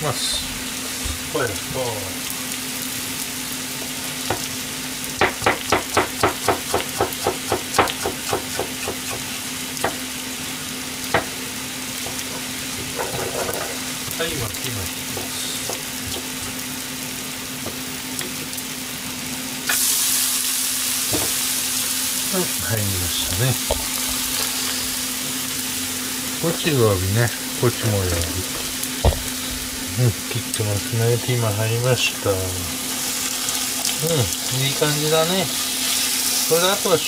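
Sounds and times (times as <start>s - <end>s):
food sizzling in a frying pan: 0.0s - 37.0s
knife chopping on a cutting board: 5.2s - 10.0s.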